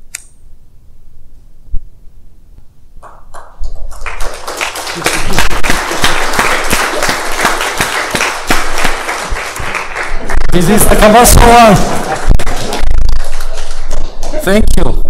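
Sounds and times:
audience applause: 3.0s - 14.6s.

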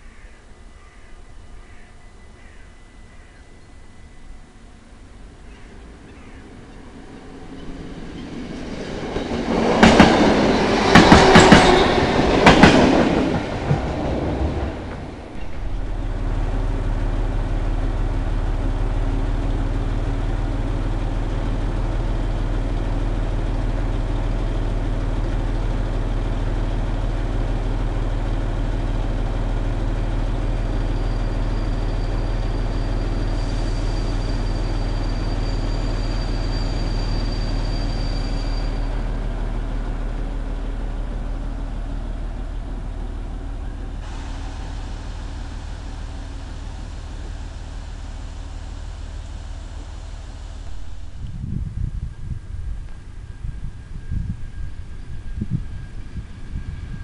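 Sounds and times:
diesel locomotive idling: 4.6s - 57.0s
train wheels clattering over rail joints: 8.2s - 15.8s.

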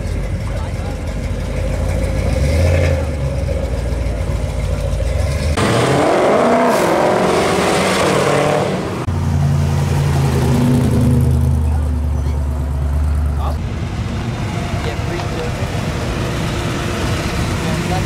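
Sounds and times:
engine idling low: 0.0s - 5.6s, 11.4s - 18.0s
engine revving pulling away: 1.6s - 18.0s.

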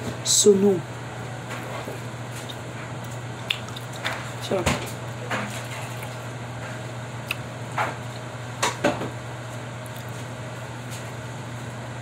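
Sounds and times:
steady low hum: 0.0s - 12.0s
person chewing: 2.4s - 4.1s, 5.9s - 6.2s, 7.2s - 8.3s, 9.8s - 10.3s.

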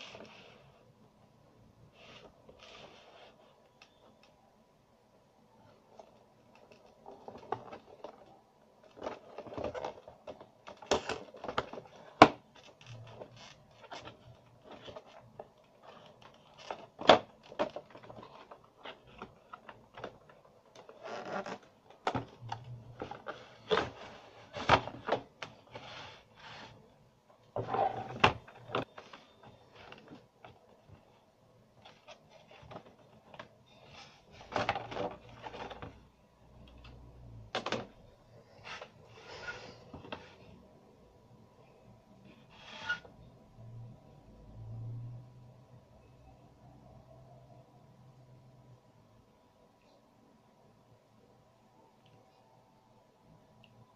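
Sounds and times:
cardboard rubbing and scraping: 22.9s - 26.8s, 27.6s - 28.4s, 42.5s - 43.0s.

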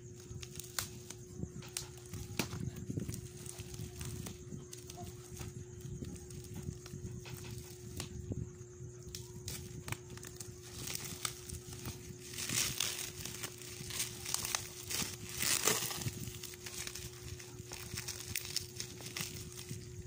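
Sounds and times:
faint steady hum: 0.0s - 20.0s
plastic wrapping crinkling: 0.3s - 8.1s, 9.2s - 20.0s.

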